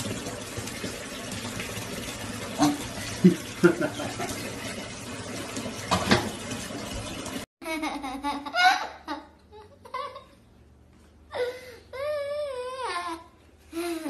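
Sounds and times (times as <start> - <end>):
toddler laughing: 7.6 - 10.4, 11.3 - 14.0.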